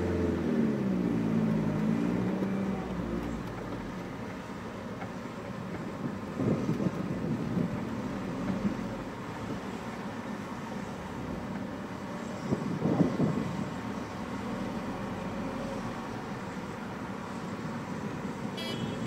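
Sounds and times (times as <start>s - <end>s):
car engine and tyre rumble: 0.0s - 19.0s.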